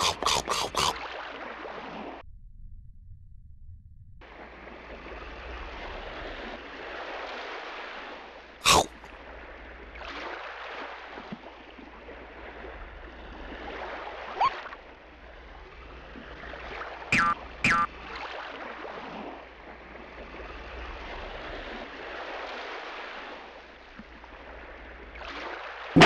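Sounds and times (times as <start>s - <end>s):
underwater bubbling and gurgling: 0.0s - 1.4s.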